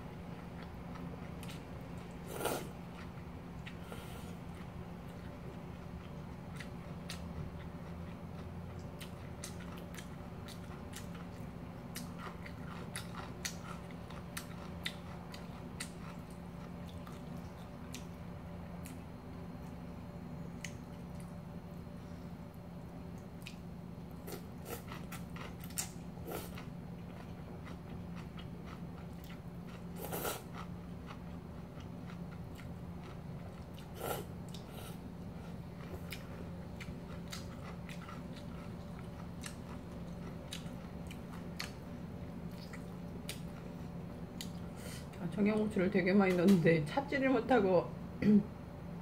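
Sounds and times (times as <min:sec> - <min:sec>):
steady low hum: 0:00.0 - 0:49.0
person chewing: 0:00.4 - 0:18.2, 0:23.1 - 0:45.1.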